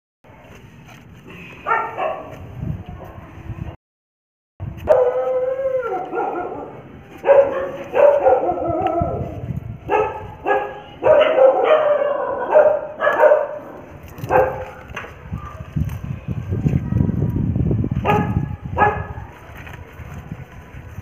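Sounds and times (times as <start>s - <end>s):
dog howling and yelping: 4.9s - 6.8s, 7.4s - 9.4s.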